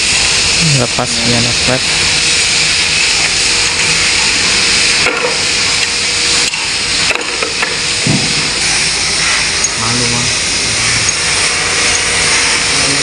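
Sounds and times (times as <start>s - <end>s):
steady loud hissing: 0.0s - 13.0s.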